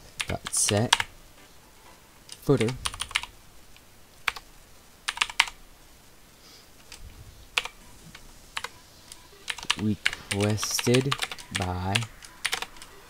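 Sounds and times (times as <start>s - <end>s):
keyboard keystrokes: 9.5s - 12.9s.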